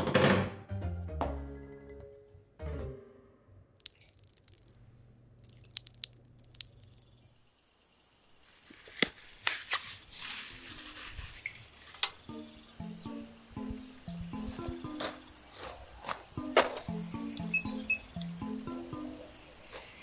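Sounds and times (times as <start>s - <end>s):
plastic bag crinkling: 8.5s - 12.0s.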